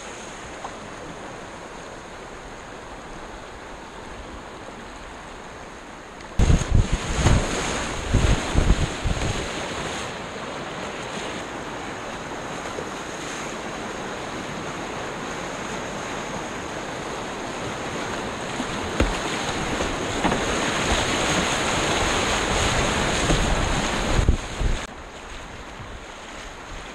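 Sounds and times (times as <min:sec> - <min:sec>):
whitewater rushing and splashing: 0:00.0 - 0:26.9
wind buffeting microphone: 0:06.4 - 0:09.9, 0:16.4 - 0:26.9.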